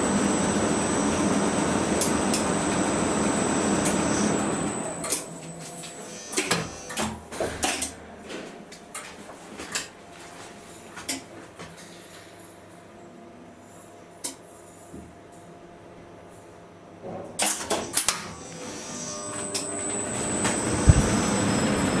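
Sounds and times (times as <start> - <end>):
elevator running: 0.0 - 6.9, 18.4 - 22.0.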